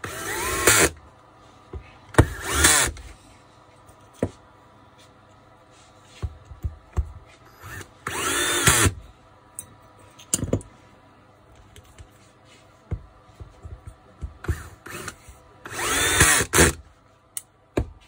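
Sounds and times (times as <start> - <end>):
drill motor whining: 0.0 - 0.9, 2.2 - 3.0, 7.5 - 9.0, 14.4 - 16.8.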